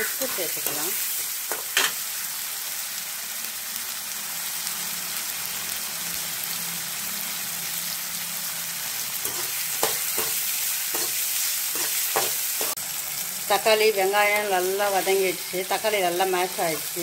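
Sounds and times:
vegetables sizzling in hot oil: 0.0 - 17.0
metal ladle scraping pan: 9.2 - 10.4.

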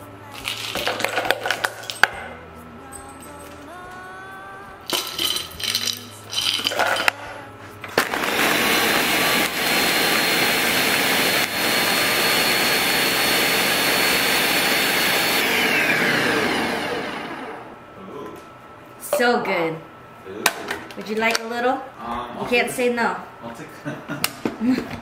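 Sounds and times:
glassy clinks: 4.9 - 7.1
blender grinding ice and fruit: 8.0 - 17.7.

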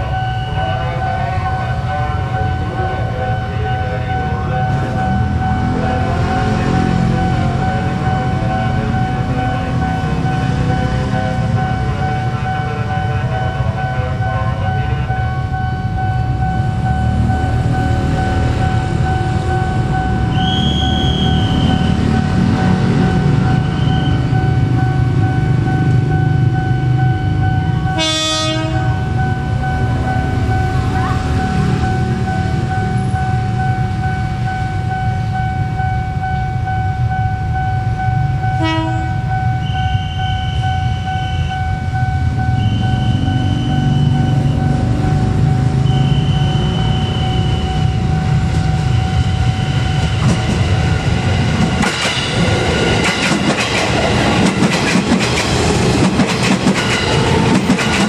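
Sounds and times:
high two-note tone: 0.0 - 50.3
electric train rumbling: 0.0 - 58.0
train horn blast: 27.9 - 29.0, 38.6 - 40.6.

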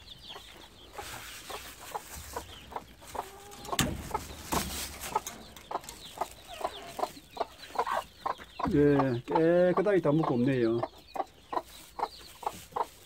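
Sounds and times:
hens clucking: 0.0 - 13.0
plastic bag rustling: 3.3 - 6.5.

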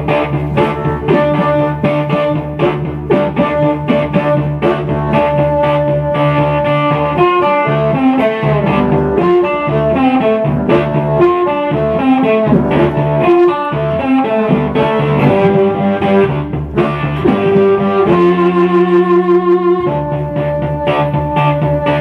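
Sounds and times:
blues harmonica: 0.0 - 22.0
low guitar riff: 0.0 - 22.0.

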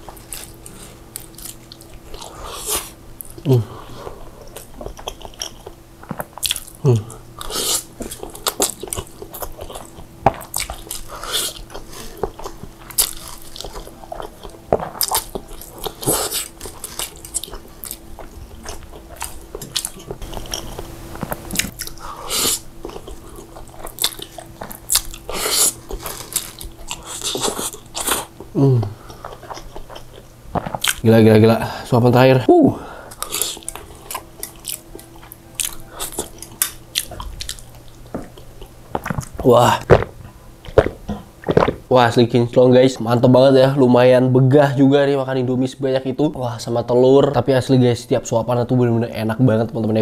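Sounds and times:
chewing and mouth sounds: 0.0 - 31.0, 33.1 - 41.8.

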